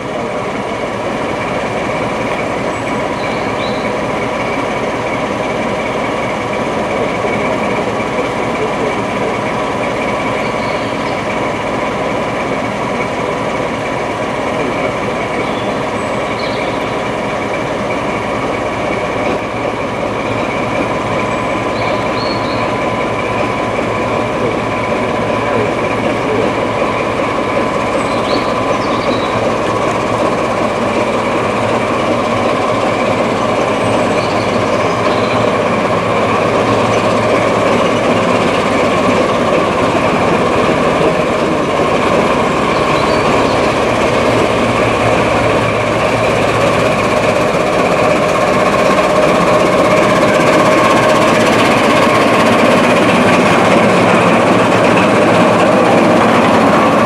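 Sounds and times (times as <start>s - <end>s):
diesel train engine drone: 0.0s - 57.0s.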